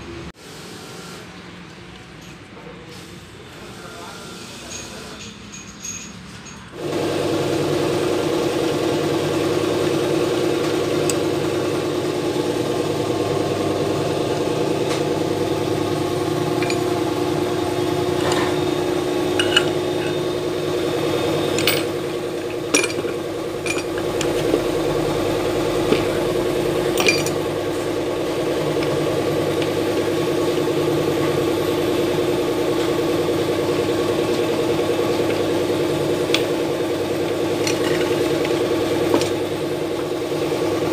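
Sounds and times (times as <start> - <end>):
engine idling: 6.8 - 40.9.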